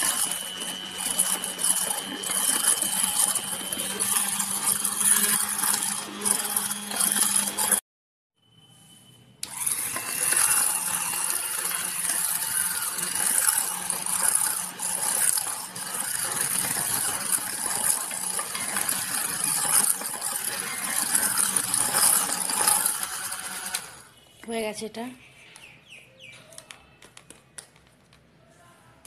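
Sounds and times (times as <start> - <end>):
electric hand blender running: 0.0 - 7.8, 9.4 - 24.1.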